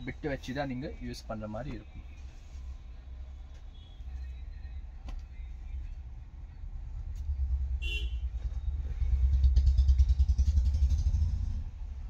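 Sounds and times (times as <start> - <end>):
vehicle engine passing by: 7.2 - 12.0
car horn toot: 7.8 - 8.3.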